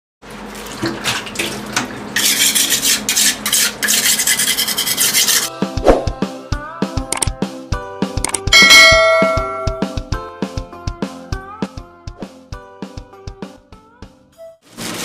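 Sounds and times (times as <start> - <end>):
kitchen tool rasping: 2.2 - 5.5
chiming intro music: 8.6 - 10.0.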